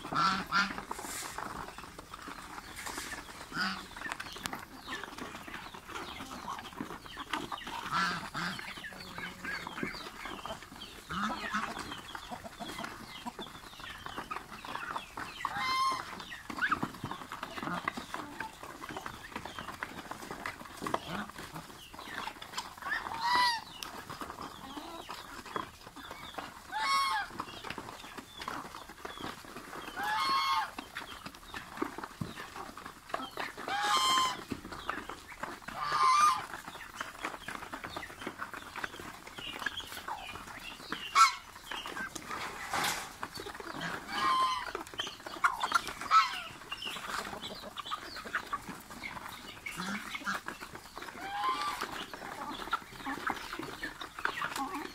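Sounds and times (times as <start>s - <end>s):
geese honking: 0.0s - 1.6s, 2.4s - 6.7s, 7.6s - 10.1s, 15.4s - 16.3s, 22.8s - 23.7s, 26.7s - 27.4s, 30.0s - 30.8s, 33.2s - 34.6s, 35.7s - 36.6s, 41.0s - 50.5s, 51.1s - 54.9s
chickens clucking: 0.0s - 54.9s.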